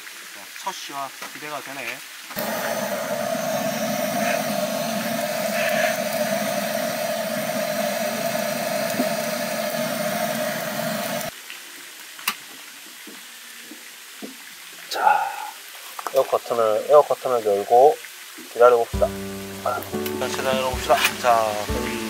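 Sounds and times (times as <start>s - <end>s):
butane torch hissing: 2.4s - 11.3s, 19.0s - 22.0s.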